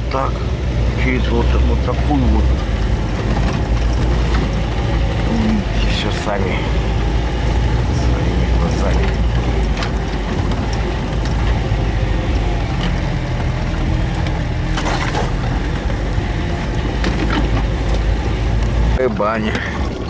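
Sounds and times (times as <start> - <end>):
truck engine droning: 0.0 - 20.0
body rattles and knocks: 2.0 - 20.0
branches scraping against cab: 2.6 - 18.9.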